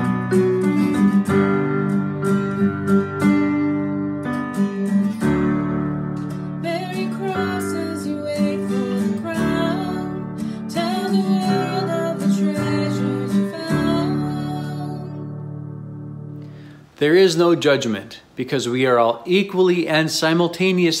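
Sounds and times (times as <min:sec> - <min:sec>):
acoustic guitar strumming: 0:00.0 - 0:17.0
woman singing: 0:06.6 - 0:15.4.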